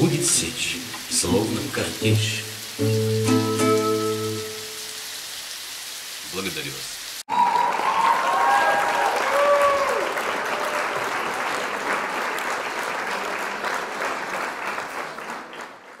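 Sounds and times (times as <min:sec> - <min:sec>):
audience applause: 0:07.3 - 0:16.0.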